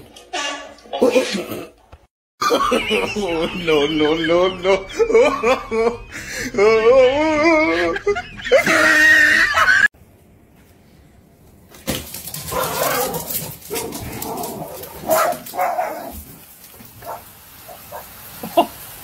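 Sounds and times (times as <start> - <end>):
rain hissing: 12.8 - 19.0.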